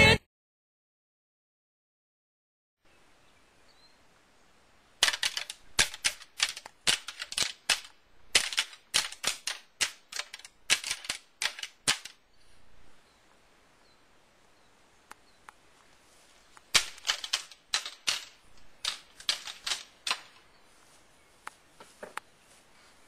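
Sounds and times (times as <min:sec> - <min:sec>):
antlers clacking together: 0:05.0 - 0:12.2, 0:16.7 - 0:20.4.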